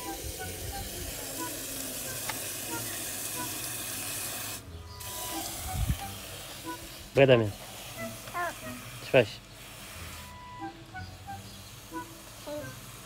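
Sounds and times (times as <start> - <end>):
hose nozzle spraying water: 0.0 - 10.4.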